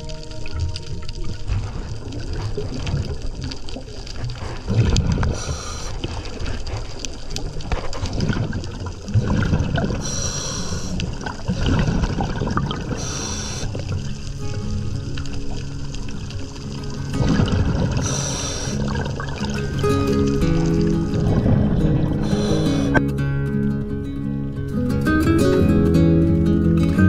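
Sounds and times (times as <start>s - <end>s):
bubbles gurgling underwater: 0.0s - 23.0s
hissing regulator inhalations: 5.2s - 6.4s, 10.0s - 11.4s, 12.8s - 14.0s, 17.8s - 19.3s, 22.0s - 23.0s.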